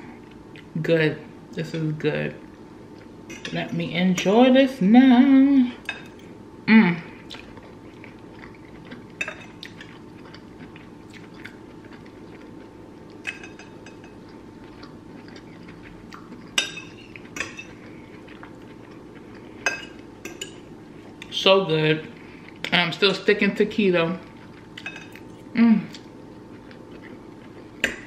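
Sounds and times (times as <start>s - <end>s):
chewing: 7.2s - 21.3s, 24.2s - 28.0s.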